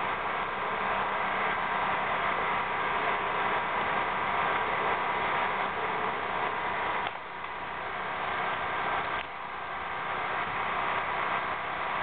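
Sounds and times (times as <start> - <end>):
machine hissing with faint hum: 0.0 - 12.0.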